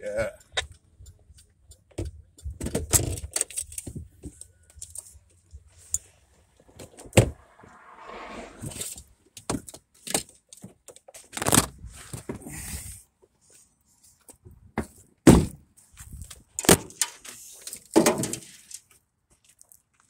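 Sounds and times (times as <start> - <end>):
car driving past: 6.7 - 9.1.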